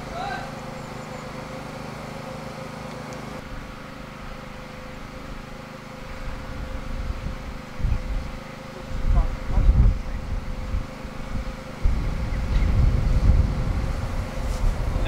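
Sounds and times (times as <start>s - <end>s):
pump engine running: 0.0s - 15.0s
wind buffeting microphone: 6.2s - 15.0s.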